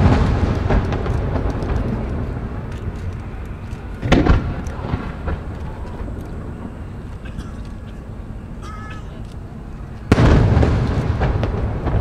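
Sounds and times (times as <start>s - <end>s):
small firework pops: 0.0s - 6.4s, 10.0s - 12.0s
fireworks booming: 0.0s - 9.2s, 10.1s - 12.0s.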